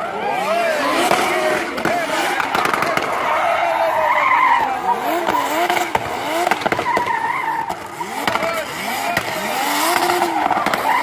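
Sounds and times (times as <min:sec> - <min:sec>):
tyres squealing on pavement: 0:00.0 - 0:11.0
car engine revving hard: 0:00.1 - 0:11.0
sharp cracks: 0:01.1 - 0:03.7, 0:05.0 - 0:11.0.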